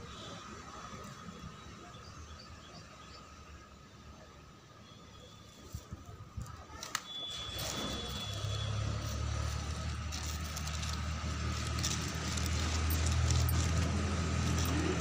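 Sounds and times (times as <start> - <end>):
low engine rumble: 7.7 - 15.0.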